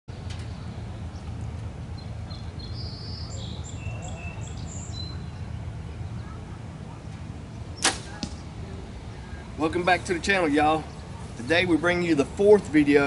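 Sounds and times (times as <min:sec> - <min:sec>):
small birds chirping: 0:00.1 - 0:08.2
low outdoor rumble: 0:00.1 - 0:13.0
bow shot snap: 0:07.8 - 0:08.4.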